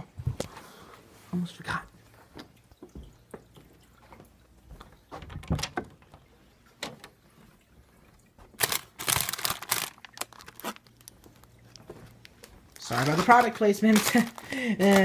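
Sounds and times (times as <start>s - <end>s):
cupboard door clicks and knocks: 5.2s - 6.0s
food box rustling: 8.5s - 15.0s.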